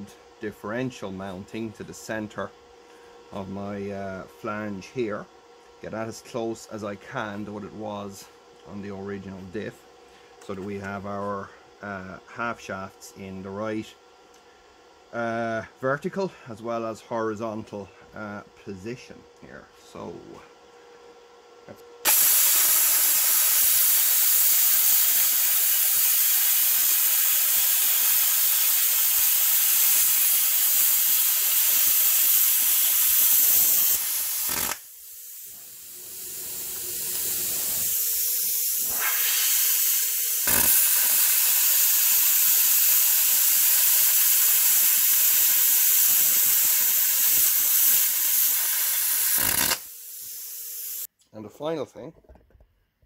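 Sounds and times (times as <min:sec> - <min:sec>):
quieter hiss: 0:21.7 - 0:51.8
plasma cutter hissing: 0:22.0 - 0:51.1.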